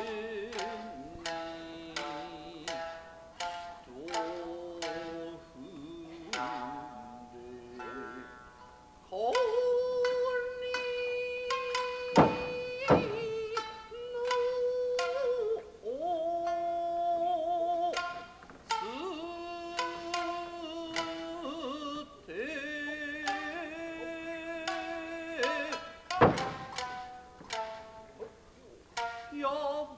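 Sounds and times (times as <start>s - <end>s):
person singing long wavering lines: 0.0s - 29.9s
shamisen plucking: 0.0s - 29.9s
loud sharp knocks: 12.1s - 13.6s, 26.1s - 28.4s.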